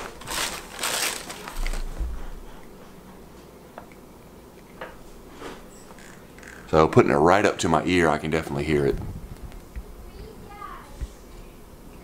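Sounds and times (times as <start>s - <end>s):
bubble wrap crinkling: 0.0s - 2.3s
cables being handled: 0.0s - 4.0s.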